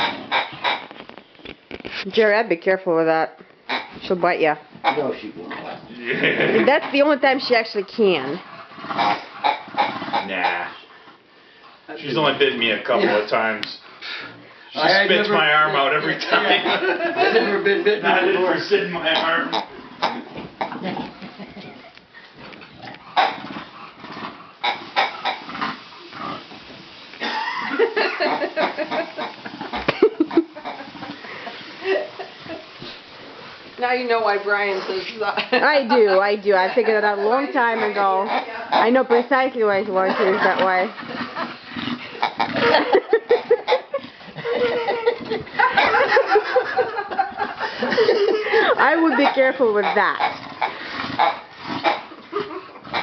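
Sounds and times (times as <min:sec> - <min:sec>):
dog grunting: 0:07.8 - 0:11.0, 0:16.4 - 0:21.9, 0:37.1 - 0:44.8, 0:47.8 - 0:53.0
dog making rough noises: 0:07.8 - 0:11.2, 0:19.2 - 0:26.8, 0:48.8 - 0:53.0.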